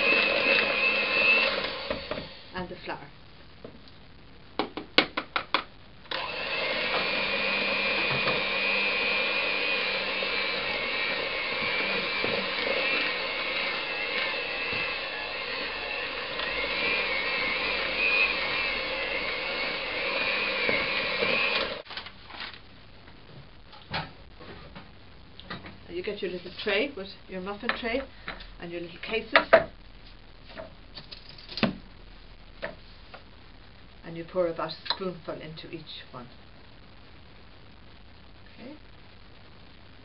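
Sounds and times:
electric hand mixer whining: 0.0s - 2.5s, 6.1s - 21.8s.

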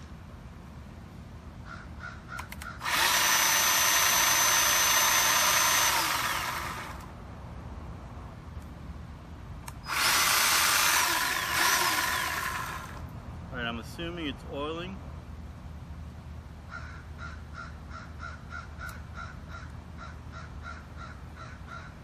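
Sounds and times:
electric chainsaw running: 2.8s - 7.1s, 9.8s - 13.0s.

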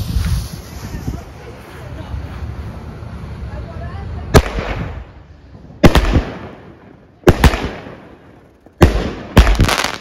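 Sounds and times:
firework crackling: 0.0s - 10.0s
firework bangs with echo: 4.3s - 5.0s, 5.8s - 8.2s, 8.8s - 10.0s.

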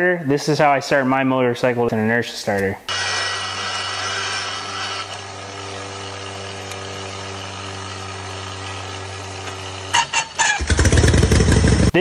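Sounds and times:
inertia starter whining: 2.9s - 12.0s
motorcycle engine running: 3.9s - 12.0s.

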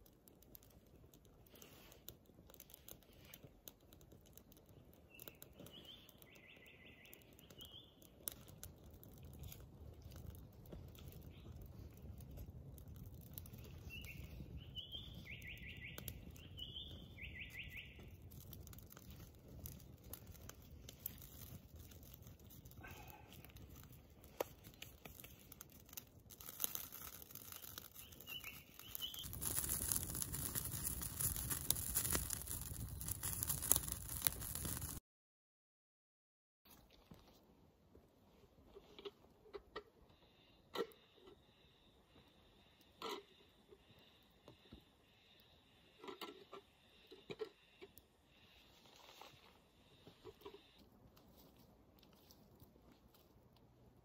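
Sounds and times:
campfire crackling and popping: 0.0s - 35.0s, 42.2s - 54.0s
bird singing: 5.1s - 8.0s, 13.7s - 18.1s, 27.9s - 29.4s.

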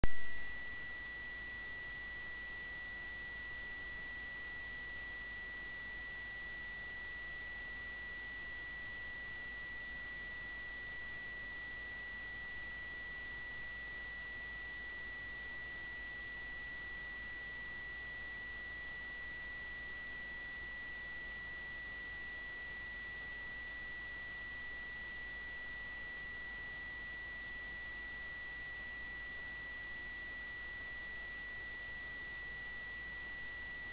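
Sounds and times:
high-pitched electronic whine: 0.0s - 2.3s.

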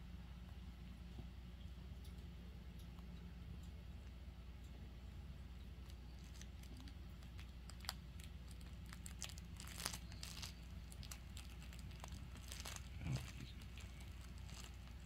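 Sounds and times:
toy crinkling: 5.8s - 15.0s.

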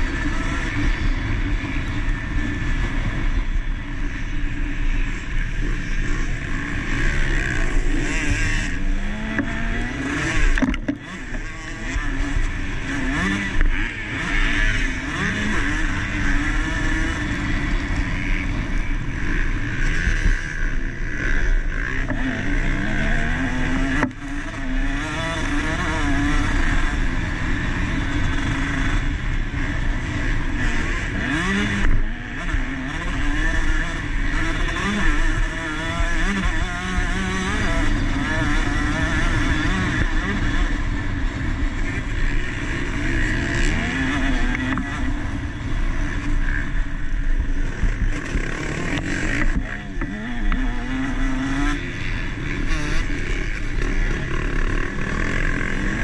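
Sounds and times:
constant rush of noise: 0.0s - 56.0s
motocross bike engine revving: 0.0s - 56.0s.

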